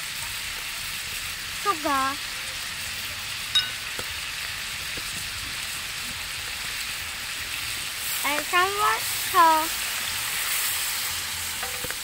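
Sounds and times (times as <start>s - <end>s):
food sizzling in oil: 0.0s - 12.0s
sharp clink: 3.6s - 3.8s.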